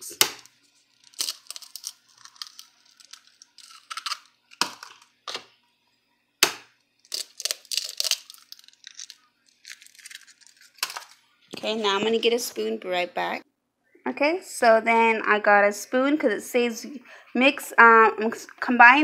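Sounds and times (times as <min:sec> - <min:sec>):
eggshell crackling: 0:00.0 - 0:05.5, 0:06.4 - 0:13.3
eggshells knocking: 0:00.2 - 0:05.4, 0:06.4 - 0:11.2.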